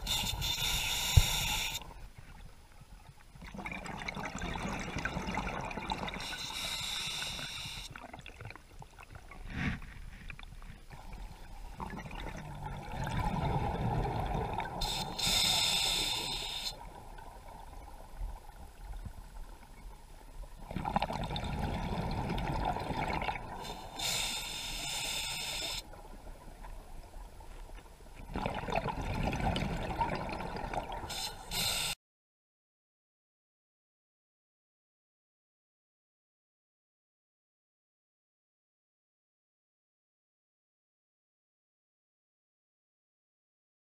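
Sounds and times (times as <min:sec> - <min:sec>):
regulator inhalation hiss: 0:00.0 - 0:01.8, 0:06.2 - 0:07.9, 0:14.8 - 0:16.8, 0:23.6 - 0:25.8, 0:31.1 - 0:32.0
exhaled bubbles: 0:03.4 - 0:09.4, 0:11.0 - 0:16.2, 0:20.6 - 0:24.2, 0:28.2 - 0:31.8.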